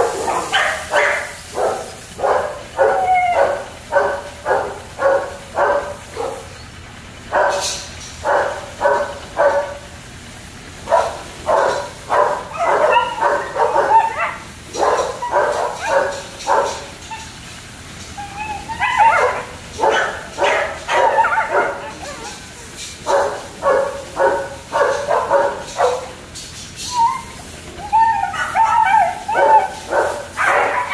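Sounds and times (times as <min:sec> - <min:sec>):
puppies yapping: 0:00.0 - 0:30.9
puppy whining: 0:02.2 - 0:06.8, 0:11.5 - 0:26.2, 0:26.8 - 0:30.9.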